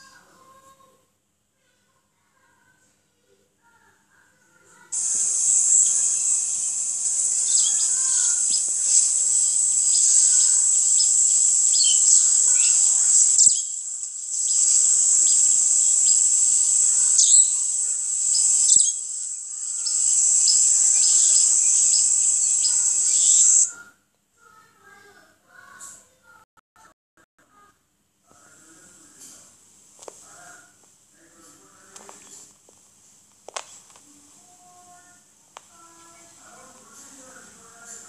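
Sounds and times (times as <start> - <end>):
insect chorus: 4.9 - 23.7
birds chirping: 5.0 - 23.8.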